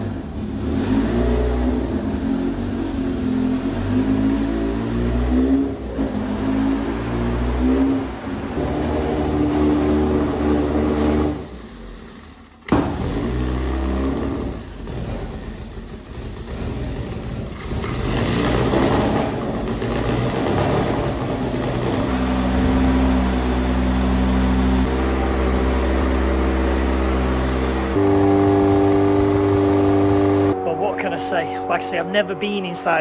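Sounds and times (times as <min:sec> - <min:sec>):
race engine running: 0:00.0 - 0:33.0.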